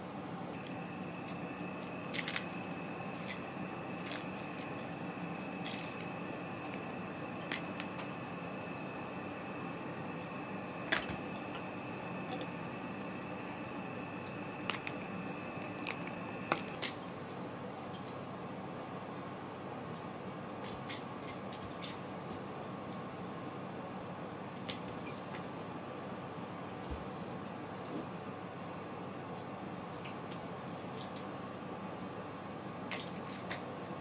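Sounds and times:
faint high whine: 0.0s - 17.2s.

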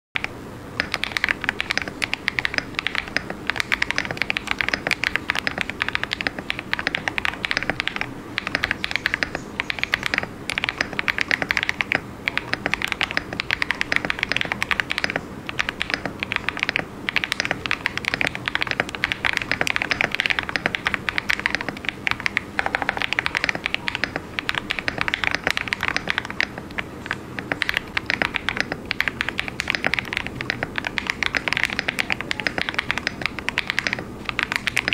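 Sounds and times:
mechanical keyboard typing: 0.2s - 34.9s.

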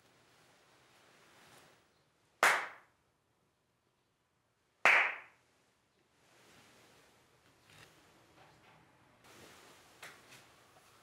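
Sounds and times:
sharp hand claps with echo: 2.4s - 2.9s, 4.8s - 5.4s.

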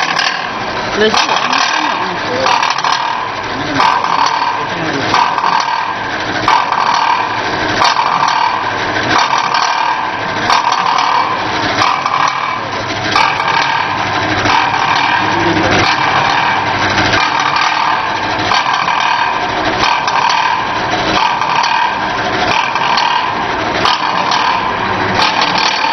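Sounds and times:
machine sharp knock: 0.0s - 25.9s
packaging machine whirring: 0.0s - 25.9s.

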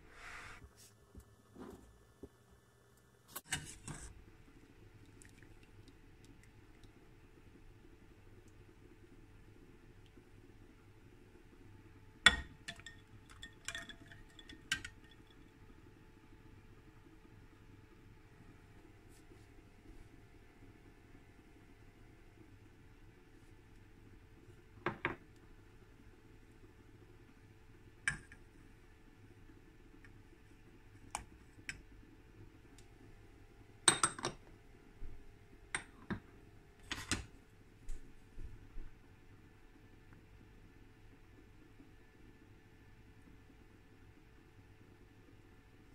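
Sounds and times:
ice clinking against glass bowl: 12.3s - 15.2s.

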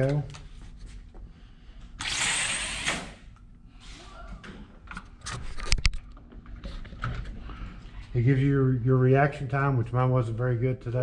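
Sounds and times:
small electric motor whirring: 2.0s - 3.2s.

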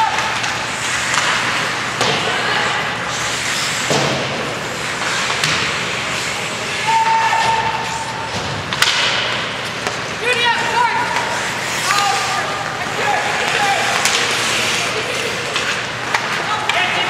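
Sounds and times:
skates and sticks on ice: 0.0s - 17.0s
stick hitting puck: 8.3s - 10.0s, 13.4s - 14.4s.

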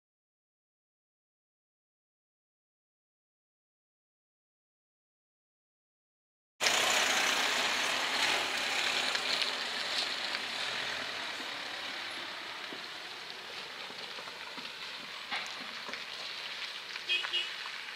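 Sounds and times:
cars driving away: 6.6s - 17.9s.

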